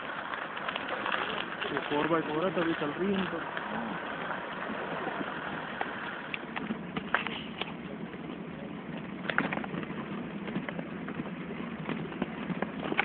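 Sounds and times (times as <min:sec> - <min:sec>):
car engine and road noise: 0:03.4 - 0:13.0.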